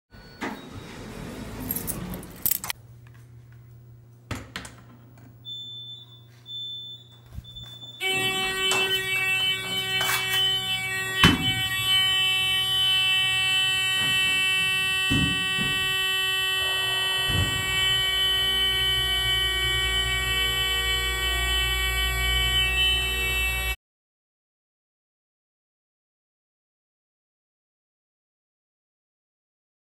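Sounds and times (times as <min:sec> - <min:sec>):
alarm buzzer: 0:05.5 - 0:23.8
low hum: 0:07.4 - 0:23.8.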